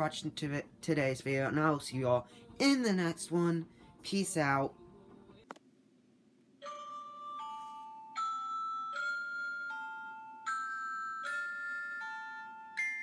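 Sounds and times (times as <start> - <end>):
bright chiming melody: 6.6 - 13.0.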